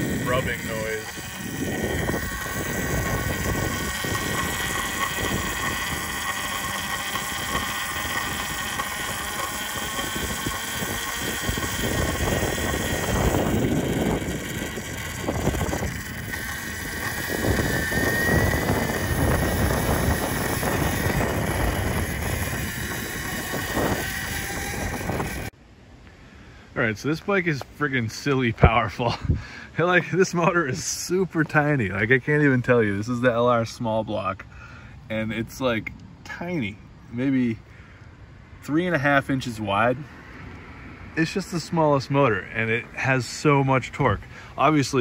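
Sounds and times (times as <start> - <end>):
wind on microphone: 0.0 - 25.5
electric bike chain whine: 0.0 - 25.6.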